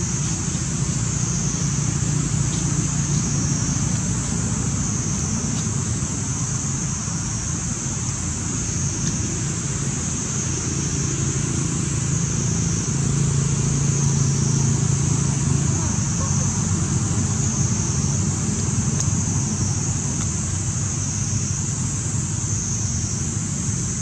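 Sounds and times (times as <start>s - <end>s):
high-pitched hiss: 0.0s - 24.0s.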